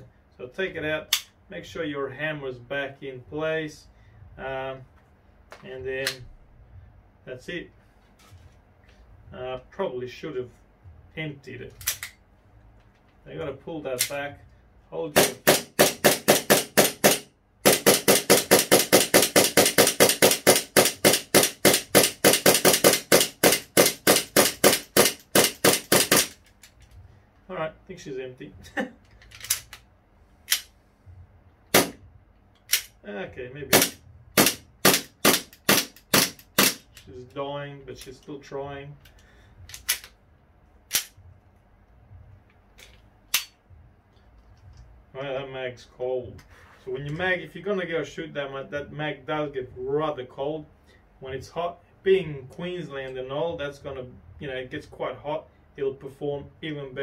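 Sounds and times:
gas pistol firing rapid shots: 0:15.2 - 0:26.4, 0:31.8 - 0:32.0, 0:33.7 - 0:36.8.

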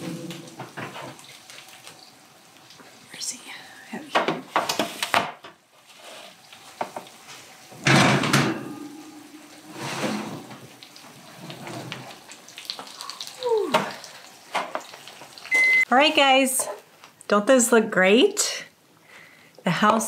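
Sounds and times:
metal roasting pan clattering: 0:07.8 - 0:10.7.

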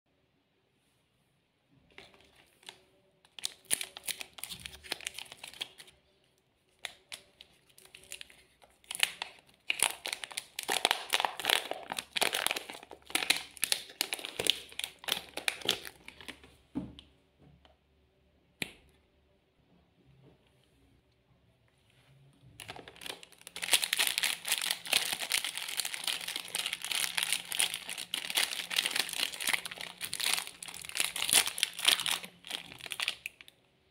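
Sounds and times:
plastic wrapper crinkling and tearing: 0:01.9 - 0:16.5, 0:22.6 - 0:33.6.

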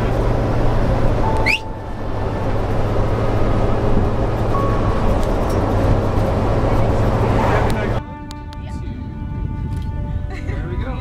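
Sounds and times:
engine hum inside vehicle: 0:00.0 - 0:08.0
road rumble: 0:00.0 - 0:11.0.

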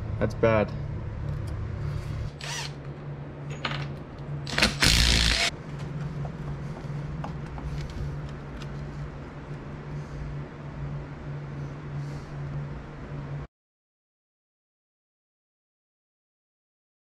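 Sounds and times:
steady low hum: 0:00.0 - 0:13.5
cordless drill burst: 0:02.4 - 0:02.8, 0:04.5 - 0:05.5.

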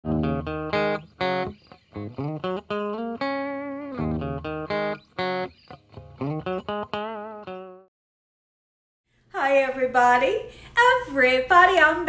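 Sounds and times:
guitar-led intro music: 0:00.0 - 0:07.9.

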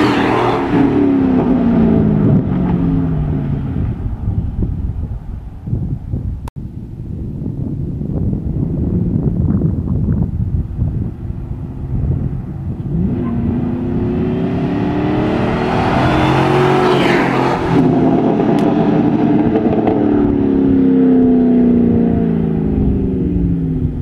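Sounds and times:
truck engine passing and revving: 0:00.0 - 0:04.4, 0:10.9 - 0:23.8
tire chirp: 0:10.8 - 0:20.7.

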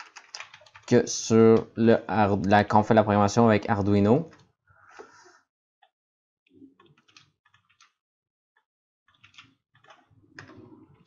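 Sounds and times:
keyboard typing: 0:00.0 - 0:01.7, 0:06.8 - 0:08.0, 0:09.1 - 0:10.8.

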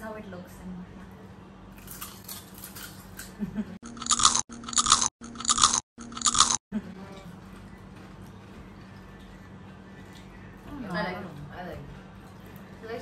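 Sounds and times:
people crunching potato chips: 0:01.8 - 0:06.6.

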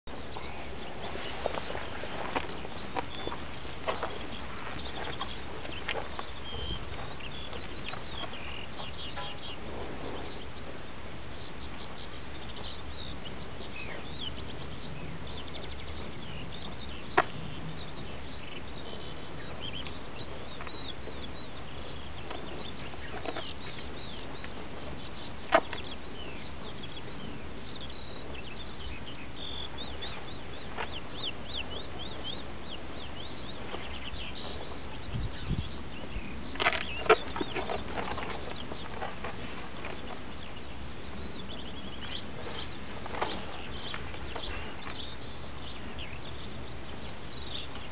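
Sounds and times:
outdoor background noise: 0:00.0 - 0:47.9
rustling: 0:00.1 - 0:10.9, 0:35.7 - 0:45.8.

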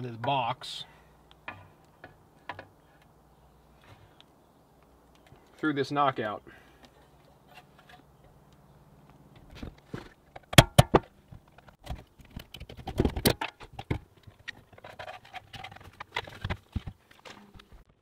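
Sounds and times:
knocks and rattles of handling: 0:01.3 - 0:03.1, 0:09.3 - 0:18.0.

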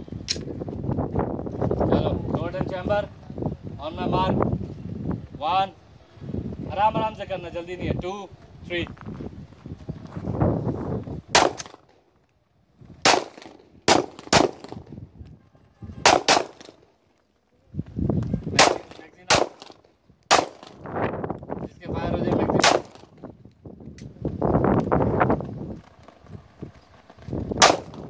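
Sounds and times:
pistol shots: 0:11.3 - 0:11.9, 0:13.0 - 0:14.9, 0:16.0 - 0:16.9, 0:18.6 - 0:20.8, 0:22.6 - 0:23.2, 0:27.6 - 0:28.0.

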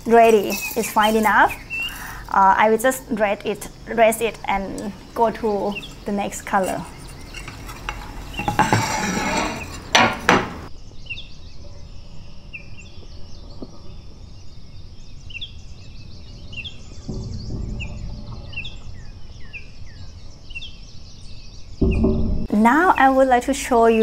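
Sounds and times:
small birds chirping: 0:00.0 - 0:08.5
palette knives scraping on tile: 0:05.1 - 0:10.7.

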